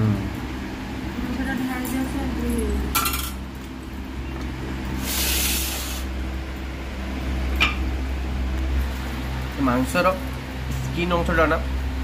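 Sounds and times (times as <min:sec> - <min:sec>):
short loud hiss: 0:05.0 - 0:06.1.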